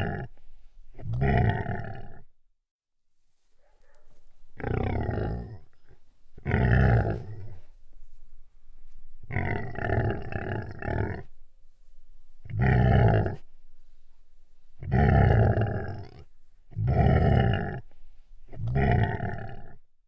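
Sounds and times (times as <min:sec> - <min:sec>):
deep beast growls: 0:00.0 - 0:00.3, 0:01.0 - 0:02.3, 0:04.6 - 0:07.6, 0:09.3 - 0:11.3, 0:12.5 - 0:13.5, 0:14.8 - 0:17.9, 0:18.5 - 0:19.8.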